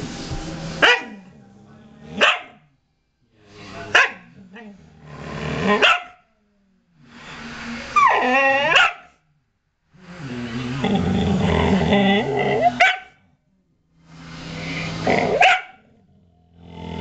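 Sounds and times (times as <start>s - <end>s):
dog barking: 0.8s - 1.2s, 2.2s - 2.6s, 3.9s - 4.3s, 5.8s - 6.2s, 8.7s - 9.1s, 12.8s - 13.2s, 15.3s - 15.8s
dog growling and yowling: 5.0s - 6.0s, 7.9s - 9.0s, 10.8s - 12.9s, 14.7s - 17.0s.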